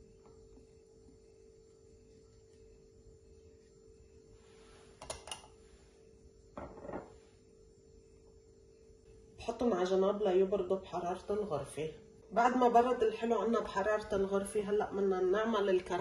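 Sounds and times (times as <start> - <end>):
faint room hum: 0.0 - 16.0
glass bowl scraping on countertop: 6.6 - 7.2
glass bowls knocking on countertop: 6.6 - 7.2.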